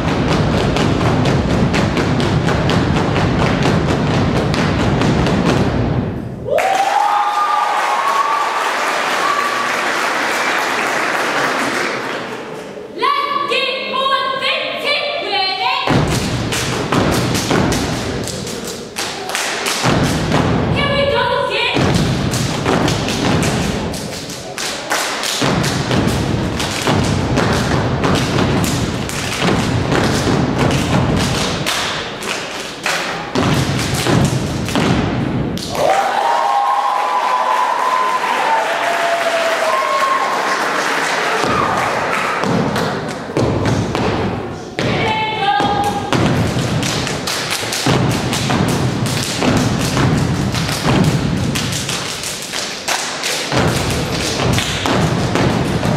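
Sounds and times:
crowd shouting and cheering: 0:06.2 - 0:32.2, 0:35.6 - 0:46.6
feet stomping on wooden stage: 0:15.9 - 0:18.4, 0:19.8 - 0:20.8, 0:21.8 - 0:24.0, 0:25.4 - 0:31.7, 0:33.3 - 0:35.3, 0:42.4 - 0:51.9, 0:53.5 - 0:55.9
hand claps and body slaps: 0:16.0 - 0:20.5, 0:21.8 - 0:35.0, 0:35.6 - 0:36.0, 0:41.0 - 0:44.3, 0:45.8 - 0:55.9.

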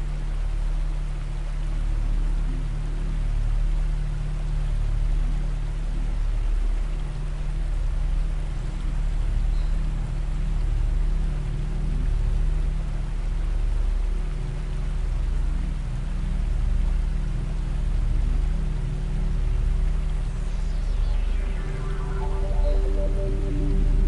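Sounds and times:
deep drone tones: 0:16.4 - 0:24.0.

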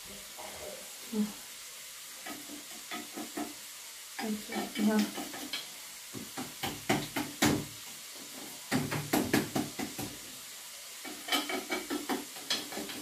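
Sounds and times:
faint steady hiss: 0:00.0 - 0:13.0
metal utensil scraping a dish: 0:02.2 - 0:03.6, 0:04.2 - 0:05.7, 0:11.0 - 0:13.0.

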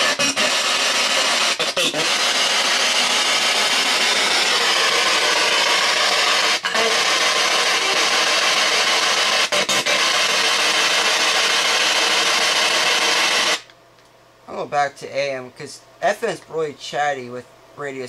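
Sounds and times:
loud radio static: 0:00.0 - 0:13.6.

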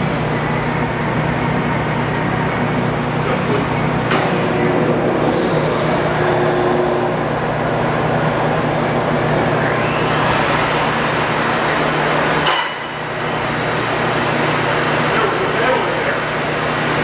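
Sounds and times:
sharp metallic clank: 0:12.4 - 0:13.0.

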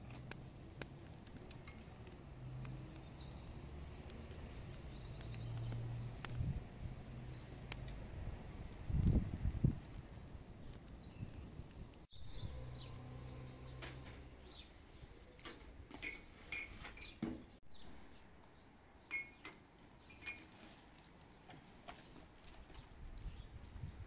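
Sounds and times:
bird chirps: 0:00.8 - 0:09.5, 0:10.4 - 0:15.8
light clinks: 0:19.1 - 0:20.6.

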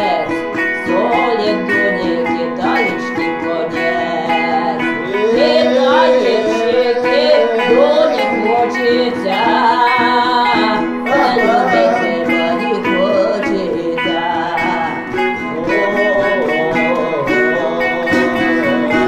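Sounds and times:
plucked balalaika: 0:00.0 - 0:19.0
woman singing folk song: 0:00.0 - 0:19.0.

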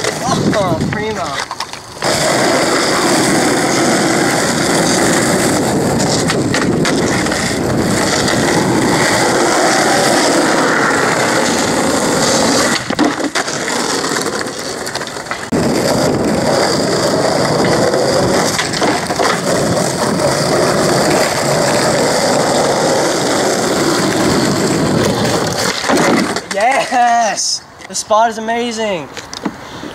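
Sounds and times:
skateboard wooden clacks: 0:00.0 - 0:02.2, 0:04.6 - 0:21.9, 0:23.8 - 0:27.3
skateboard wheels rolling on asphalt: 0:00.0 - 0:29.9.

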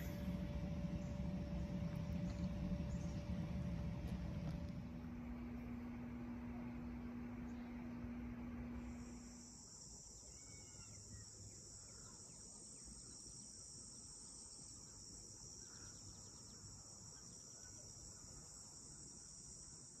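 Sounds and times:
insect chorus: 0:00.0 - 0:04.9, 0:08.6 - 0:20.0
low steady hum: 0:00.0 - 0:20.0
faint bird chirps: 0:10.2 - 0:19.3.

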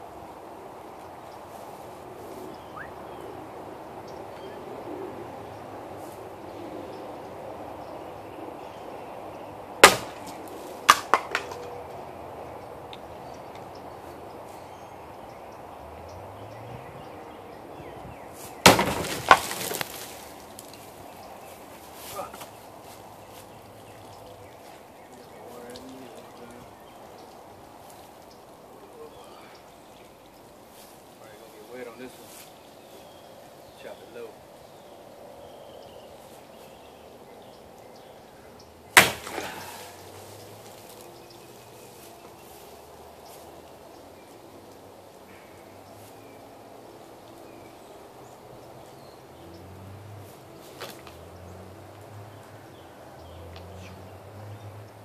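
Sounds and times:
sharp crack: 0:09.8 - 0:12.0, 0:18.5 - 0:20.9, 0:38.9 - 0:40.8.

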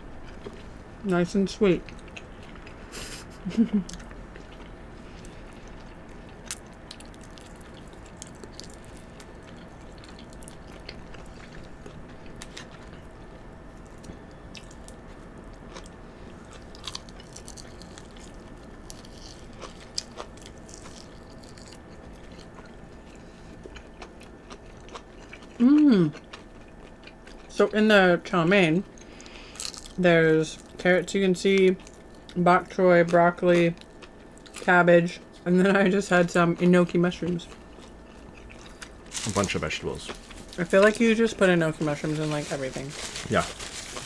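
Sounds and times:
people chewing crunchy food: 0:00.0 - 0:27.8, 0:28.4 - 0:30.9, 0:31.5 - 0:44.0
person humming mm: 0:25.6 - 0:26.1.

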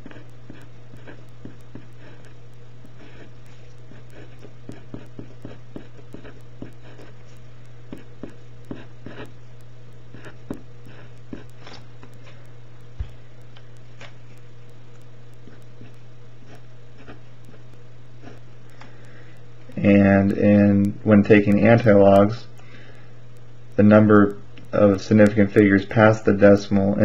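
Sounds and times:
pen scratching on paper: 0:00.0 - 0:09.4, 0:10.1 - 0:11.8, 0:15.4 - 0:18.5
steady low hum: 0:00.0 - 0:27.0.

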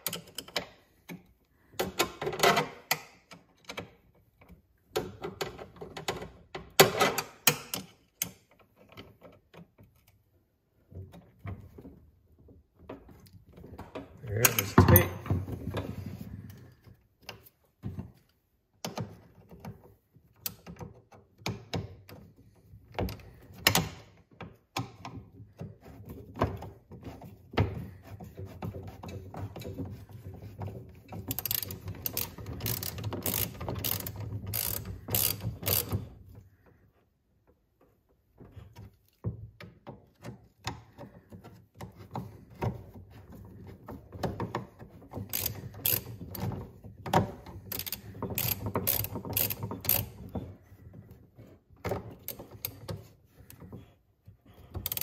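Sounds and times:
socket ratchet clicking: 0:31.3 - 0:36.0, 0:45.3 - 0:46.4, 0:47.7 - 0:50.2.

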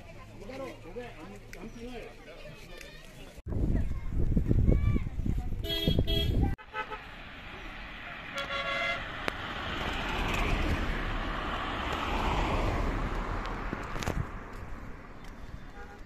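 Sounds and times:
vehicle horn tooting: 0:05.6 - 0:07.1, 0:08.3 - 0:09.1, 0:15.6 - 0:16.0
vehicle rushing past: 0:06.8 - 0:15.2.

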